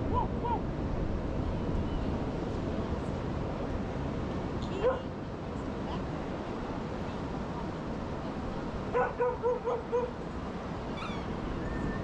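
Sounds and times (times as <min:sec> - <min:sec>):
ocean surf: 0:00.0 - 0:12.0
dog barking: 0:04.8 - 0:05.1, 0:08.9 - 0:10.1.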